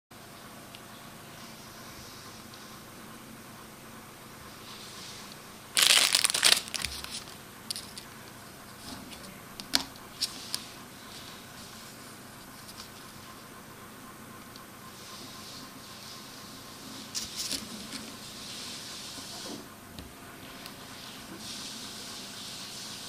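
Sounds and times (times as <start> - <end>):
plastic bag crinkling: 5.7 - 8.1.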